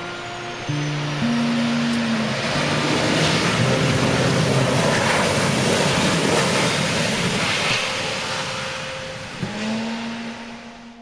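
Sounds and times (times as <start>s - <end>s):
jet engines roaring: 0.0s - 11.0s.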